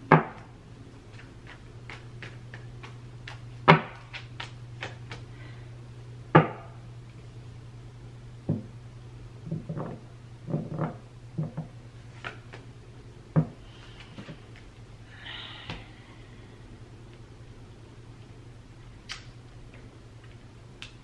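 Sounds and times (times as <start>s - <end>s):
steady low hum: 0.0s - 21.0s
cards shuffling with soft clicks: 1.1s - 5.3s.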